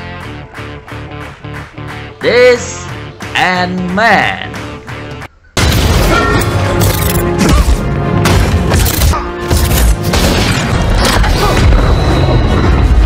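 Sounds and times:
dramatic film music: 0.0 - 13.0
booming impacts and crashes: 10.0 - 13.0.

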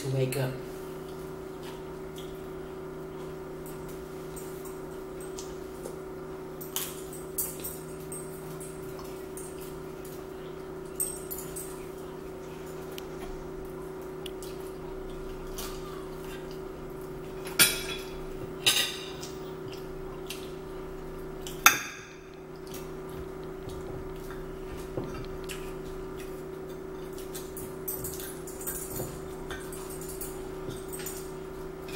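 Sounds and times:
steady low hum: 0.0 - 31.9
cutlery and plates clinking: 17.4 - 19.3, 24.3 - 31.9.

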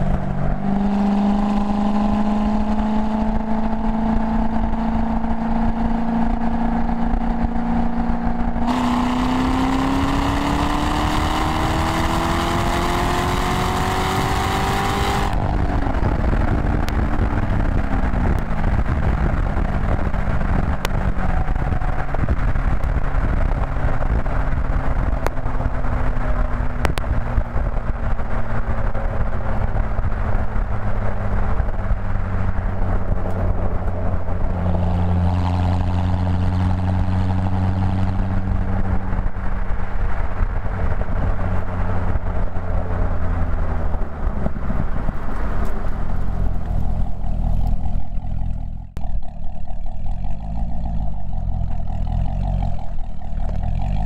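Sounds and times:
car engine revving: 0.0 - 54.0.

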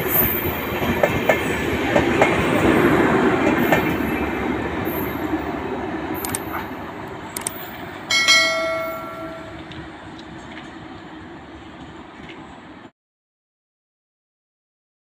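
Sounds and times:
train rushing past: 0.0 - 12.9
sharp clicks: 6.2 - 6.5, 7.3 - 7.7
loud ringing tone: 8.1 - 9.6.

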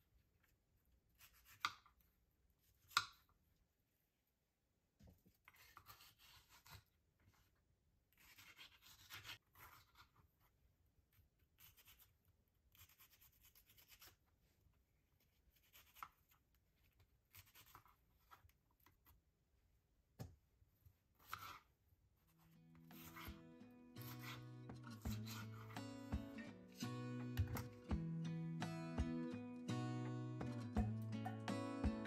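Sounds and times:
knife slicing on cutting board: 8.2 - 10.0, 21.2 - 21.7, 22.9 - 23.4, 24.0 - 25.8.

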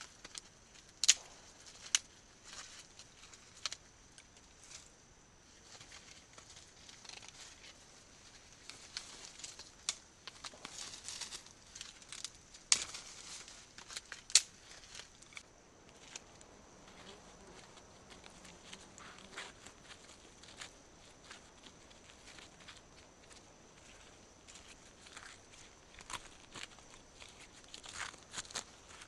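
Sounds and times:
brush rustling and crackling: 0.0 - 29.0
twigs snapping: 0.2 - 4.3, 8.6 - 16.3.

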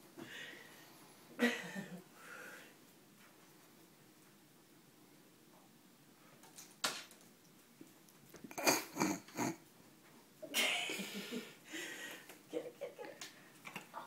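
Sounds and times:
person laughing breathily: 10.5 - 13.2.

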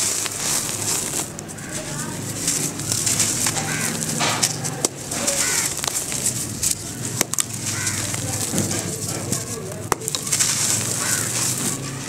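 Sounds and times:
grit pouring hiss: 0.0 - 4.2
dirt clods crunching in hands: 0.0 - 12.0
lumps cracking: 0.0 - 12.0.

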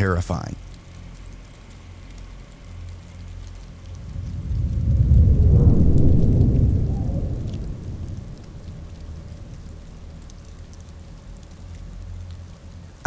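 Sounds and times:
faint steady background hiss: 0.0 - 13.0
deep rumble: 0.6 - 13.0.

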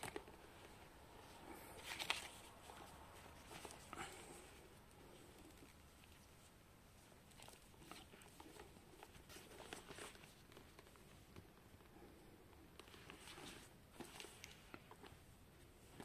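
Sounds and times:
bag rustling and clicking: 12.8 - 15.2.

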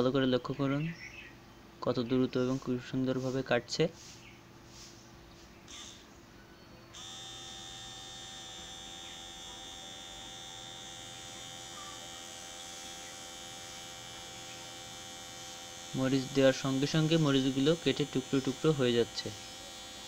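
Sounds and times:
blender motor whining: 7.0 - 20.0.

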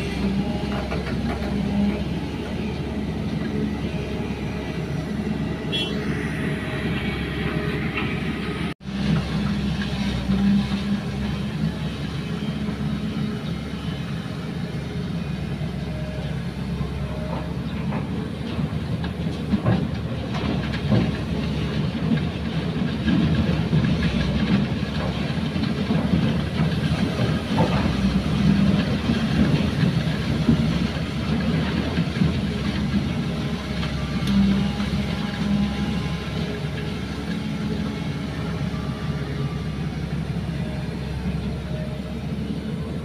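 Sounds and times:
excavator diesel engine: 0.0 - 43.0.

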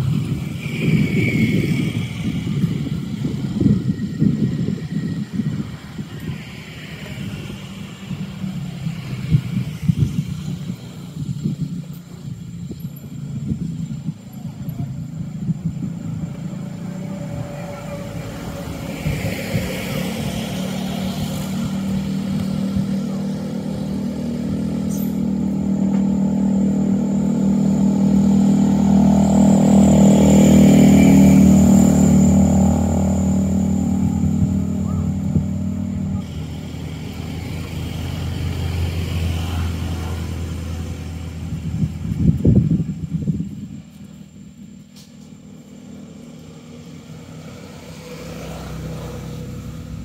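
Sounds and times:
vehicle engine running: 0.0 - 50.0.

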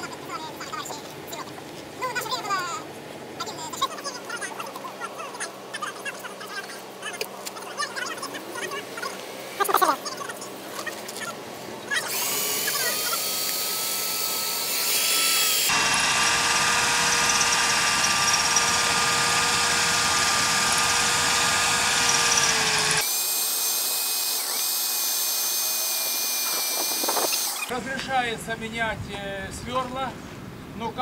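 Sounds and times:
electric drill boring into steel: 12.1 - 27.7.

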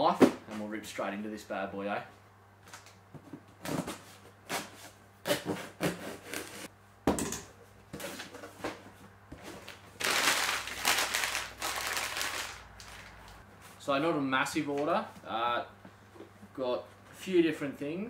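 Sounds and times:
packing paper crinkling: 9.6 - 13.4.

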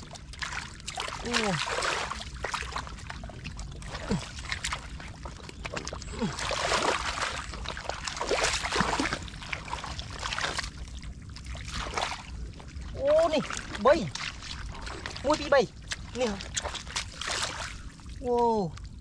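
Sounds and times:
feet sloshing through muddy water: 0.0 - 19.0
small wet slaps: 0.2 - 3.1, 13.5 - 18.9.

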